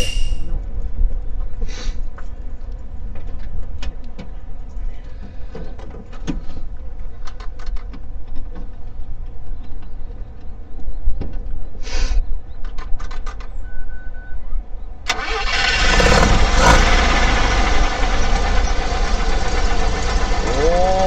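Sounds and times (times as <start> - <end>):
rotary engine idling: 15.1 - 21.0.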